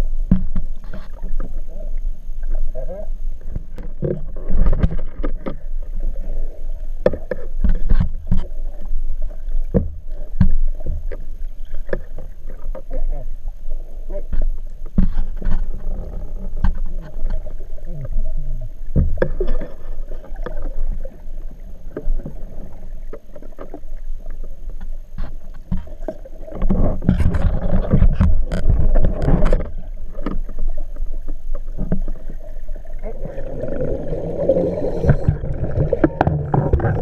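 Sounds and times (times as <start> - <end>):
underwater water rumble: 0.0 - 37.0
rushing water noise: 26.3 - 37.0.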